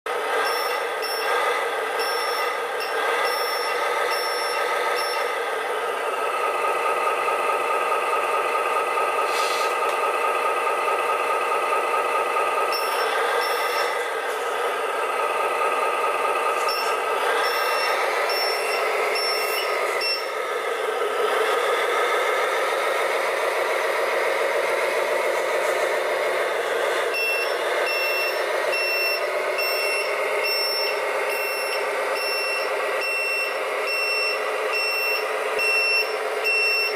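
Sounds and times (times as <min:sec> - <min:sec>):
simulated diesel truck engine: 0:00.1 - 0:36.9
high reversing beeps: 0:00.4 - 0:01.4, 0:02.0 - 0:05.4, 0:12.6 - 0:14.0, 0:16.3 - 0:20.4, 0:27.1 - 0:36.9.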